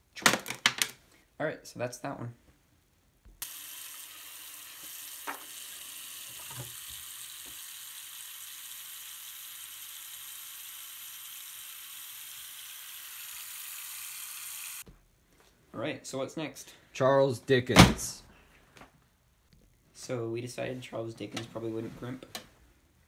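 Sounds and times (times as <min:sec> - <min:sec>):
tap water running into sink: 0:03.4 - 0:10.8.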